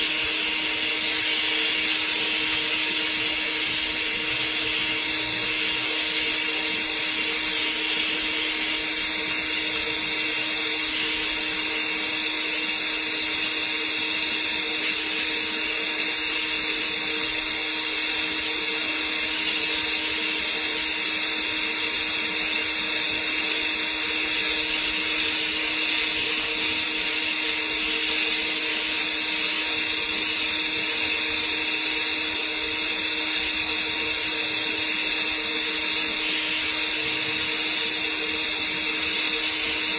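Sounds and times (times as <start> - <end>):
welding arc hissing: 0.0 - 39.9.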